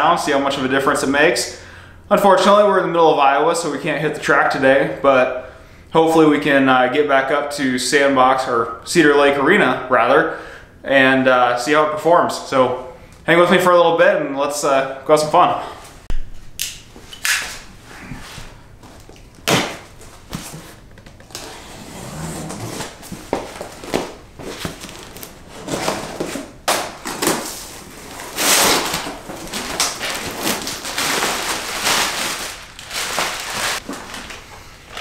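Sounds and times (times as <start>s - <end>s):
cardboard knocks and scrapes: 18.8s - 27.6s
packing material rustling: 18.9s - 35.0s.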